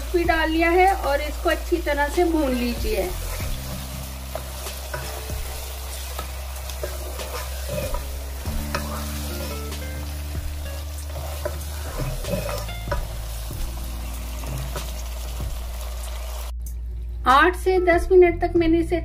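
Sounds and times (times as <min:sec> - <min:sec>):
meat sizzling in oil: 0:00.0 - 0:16.5
spatula stirring and scraping: 0:02.2 - 0:15.3.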